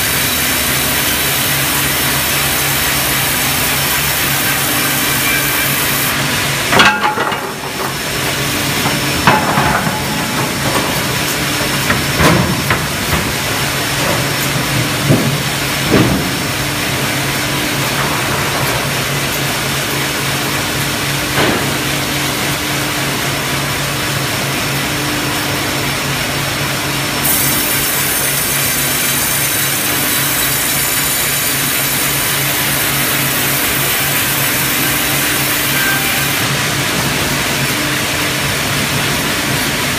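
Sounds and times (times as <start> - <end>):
machine hum and hiss: 0.0 - 39.9
knocks and bangs of timber: 8.8 - 16.6.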